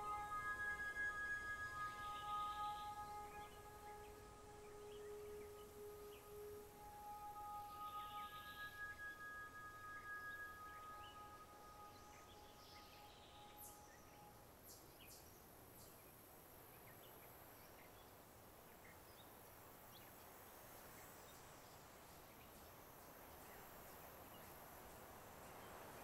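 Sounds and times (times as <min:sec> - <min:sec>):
faint chirps and ticks: 0:09.7 - 0:26.0.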